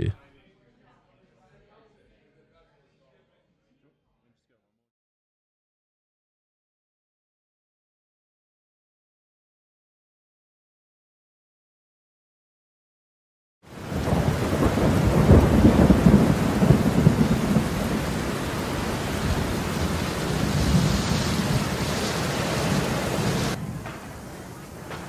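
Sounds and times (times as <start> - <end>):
heavy rain: 13.7 - 25.0
rolling thunder: 13.7 - 25.0.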